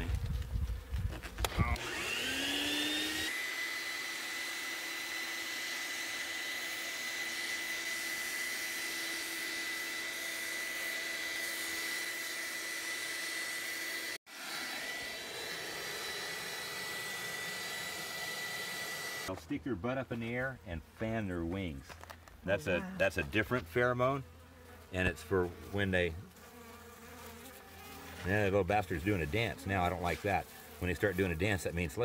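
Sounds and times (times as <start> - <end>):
vacuum motor whining and rushing: 1.0 - 19.3.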